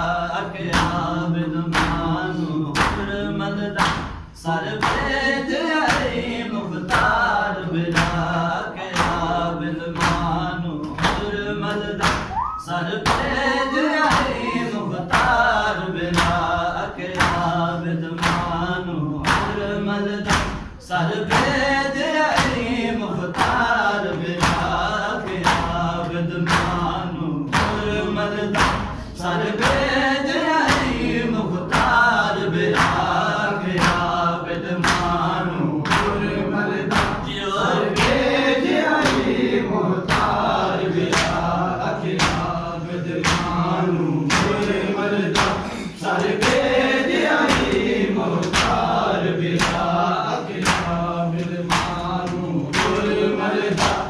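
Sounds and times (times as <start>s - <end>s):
men chanting a lament: 0.0s - 54.0s
hands slapping on chests: 2.8s - 3.1s, 3.8s - 4.1s, 7.9s - 8.3s, 10.0s - 13.4s, 14.0s - 15.4s, 17.1s - 17.5s, 18.2s - 18.6s, 19.2s - 19.6s, 20.2s - 20.7s, 34.8s - 36.2s, 40.1s - 41.4s, 42.2s - 42.5s, 43.2s - 43.7s, 44.3s - 45.6s, 46.2s - 49.9s, 50.6s - 54.0s.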